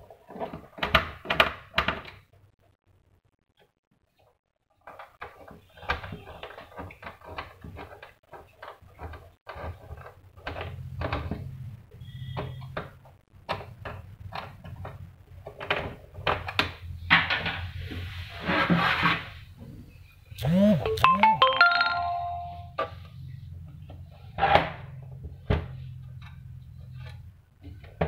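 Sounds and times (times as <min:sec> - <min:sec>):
plastic parts clicking and knocking: 0:00.0 - 0:02.4, 0:03.6 - 0:17.7.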